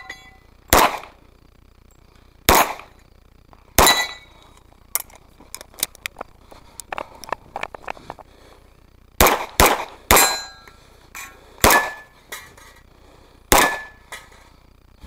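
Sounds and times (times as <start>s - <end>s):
pistol shots: 0.7s - 1.2s, 2.5s - 2.9s, 3.8s - 4.2s, 9.2s - 10.5s, 11.6s - 12.1s, 13.5s - 14.0s.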